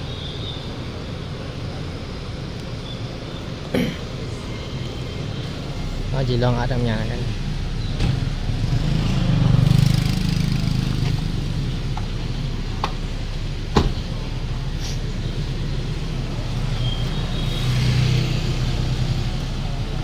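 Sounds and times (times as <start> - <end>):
vehicle engine humming: 0.0 - 20.0.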